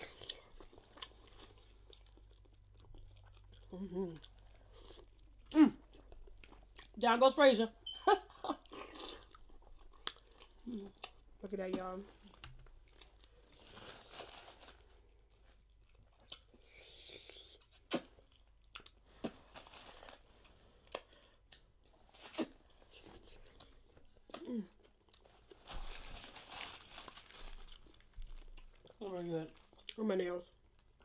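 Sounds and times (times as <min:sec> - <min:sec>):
chewing and lip smacking: 0:00.0 - 0:07.0, 0:08.6 - 0:11.2, 0:15.6 - 0:19.0.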